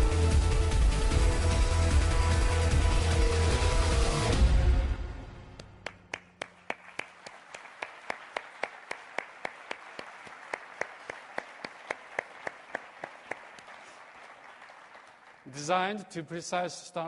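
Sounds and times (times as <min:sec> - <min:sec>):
nearby hands clapping steadily: 0:05.8 - 0:15.5
audience applauding: 0:05.8 - 0:15.9.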